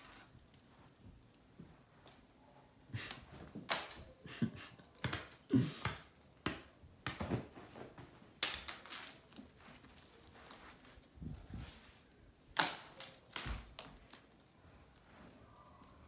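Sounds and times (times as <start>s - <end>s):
cat paws scrambling on wood floor: 7.0s - 12.1s.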